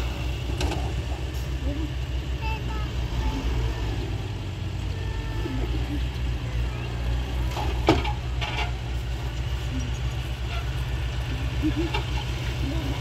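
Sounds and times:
diesel truck engine rumbling: 0.0 - 13.0.

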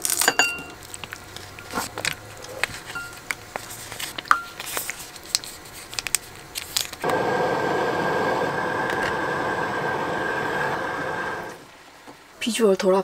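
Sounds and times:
plastic packet crinkling: 0.8 - 7.0
gas stove burner hissing: 7.0 - 11.8.

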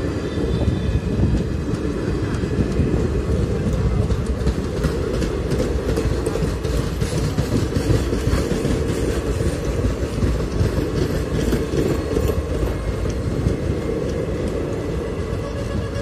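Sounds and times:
train wheels rumbling: 0.0 - 16.0
clatter on the rails: 1.2 - 16.0.

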